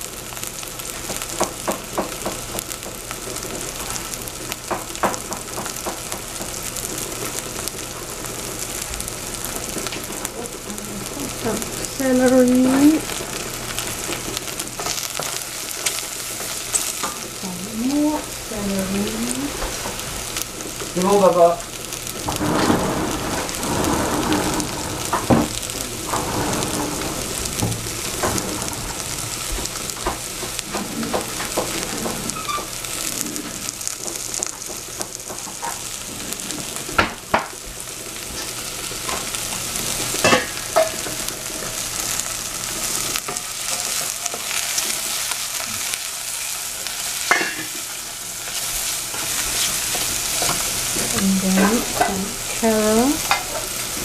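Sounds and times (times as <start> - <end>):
vegetables sizzling in a pan: 0.0 - 54.0
wooden spatula knocking on pan: 1.4 - 3.0, 4.7 - 6.6.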